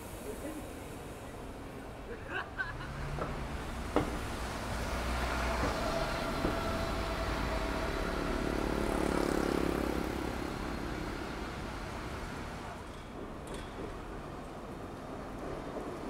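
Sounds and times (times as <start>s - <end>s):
large vehicle rumbling past: 2.9s - 12.6s.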